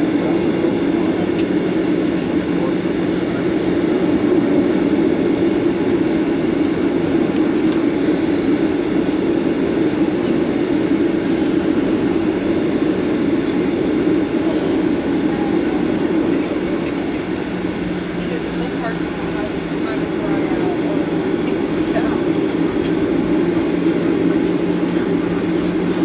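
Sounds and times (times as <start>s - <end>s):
jet engines running: 0.0s - 26.0s.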